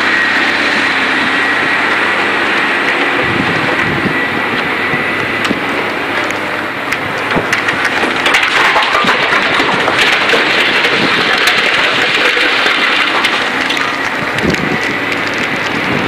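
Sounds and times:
excavator engine running: 0.0s - 16.0s
rocks clattering into truck bed: 7.2s - 16.0s.

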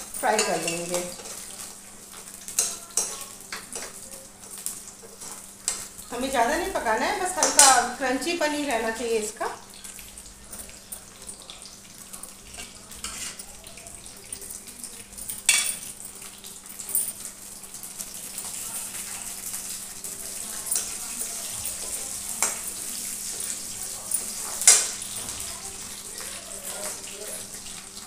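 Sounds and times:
onion sizzling in oil: 0.0s - 28.0s
spatula clinking on pan: 0.2s - 1.5s, 2.5s - 5.9s, 7.3s - 7.9s, 12.6s - 13.5s, 15.4s - 15.9s, 20.6s - 25.1s.

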